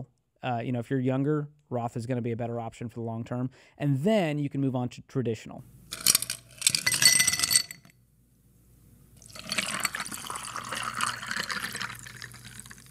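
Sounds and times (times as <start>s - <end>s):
ice cubes clinking into a glass: 5.9s - 7.9s, 9.2s - 12.9s
liquid pouring into a glass: 9.2s - 12.9s.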